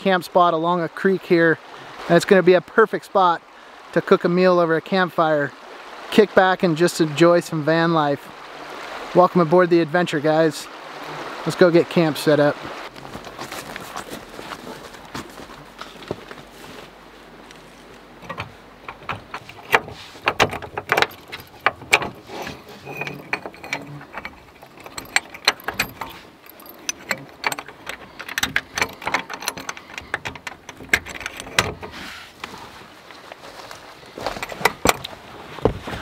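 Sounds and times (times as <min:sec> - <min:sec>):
gear clicking and rattling: 0:17.9 - 0:32.6
sharp clanks: 0:18.2 - 0:32.0.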